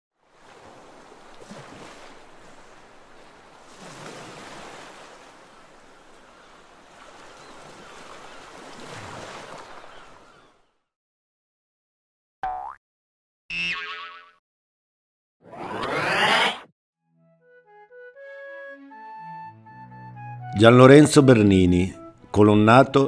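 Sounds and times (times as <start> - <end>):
sea waves washing in: 0.2 - 10.2.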